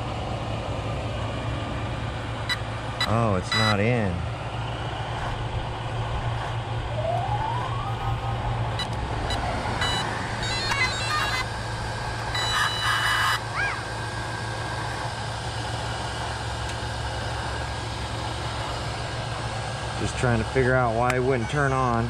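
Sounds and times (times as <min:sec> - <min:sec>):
steady low hum: 0:00.0 - 0:22.0
electronic beeps and tones: 0:02.5 - 0:03.8, 0:06.9 - 0:11.5, 0:12.3 - 0:13.4.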